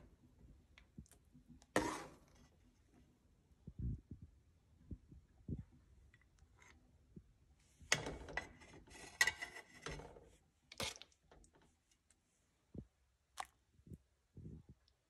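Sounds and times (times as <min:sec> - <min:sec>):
metal spoon scraping a plate: 0:01.8 - 0:02.3, 0:07.9 - 0:10.1.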